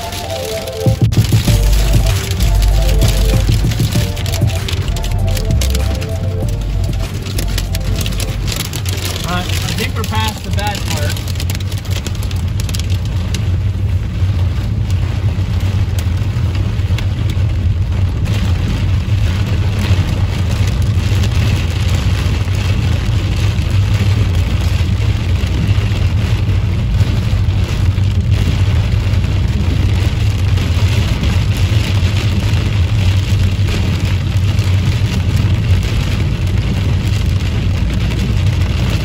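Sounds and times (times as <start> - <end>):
tyres and engine rumbling: 0.0 - 13.8
heavy rain on car windshield: 0.0 - 39.0.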